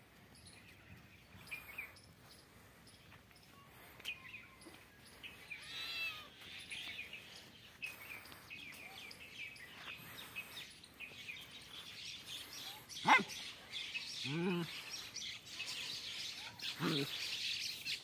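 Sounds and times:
small birds chirping: 0:00.0 - 0:18.0
sharp animal cry: 0:05.6 - 0:06.3.

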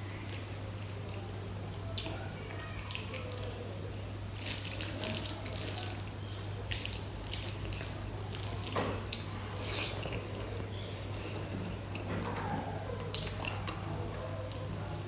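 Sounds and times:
wet squelching of rice mixing: 0:01.9 - 0:11.3.

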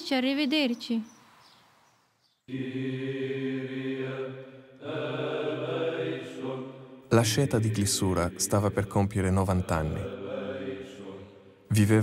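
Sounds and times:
low voices chanting: 0:02.5 - 0:12.0.

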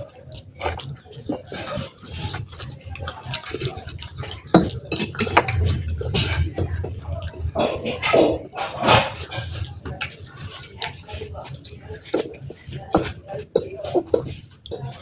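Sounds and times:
chewing and wet mouth sounds: 0:00.0 - 0:15.0.

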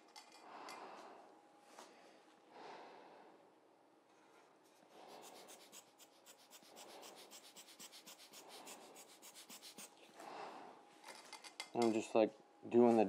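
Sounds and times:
paintbrush scratching on paper: 0:04.8 - 0:10.1.

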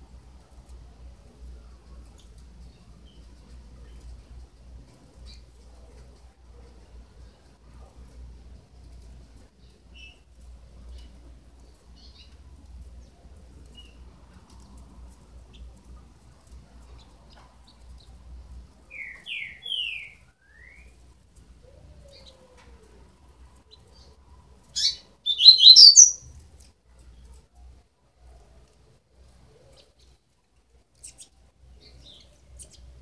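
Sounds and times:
bird chicks chirping: 0:24.8 - 0:26.3.

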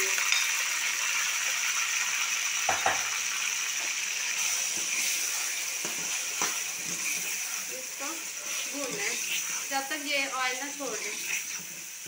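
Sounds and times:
liver sizzling in hot oil: 0:00.0 - 0:12.0
metal ladle knocking on pan: 0:02.7 - 0:03.2.

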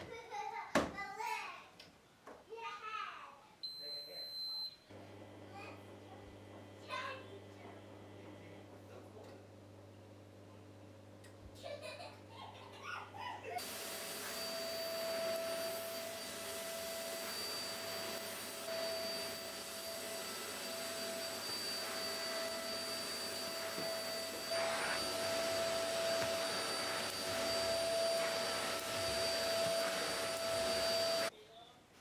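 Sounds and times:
vacuum cleaner whining: 0:04.9 - 0:09.2, 0:11.9 - 0:31.3.

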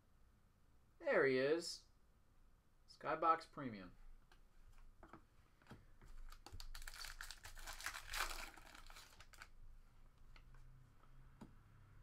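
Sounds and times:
foil wrapper crinkling: 0:06.3 - 0:09.5.

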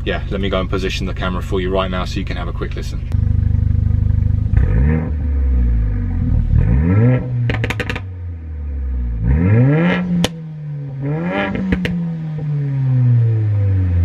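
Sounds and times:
car engine revving: 0:00.0 - 0:14.0
exhaust pops and crackles: 0:07.4 - 0:08.1, 0:11.4 - 0:12.0.

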